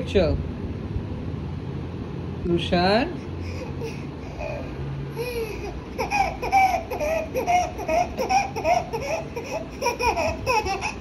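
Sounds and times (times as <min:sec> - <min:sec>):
toddler laughing: 0:03.4 - 0:11.0.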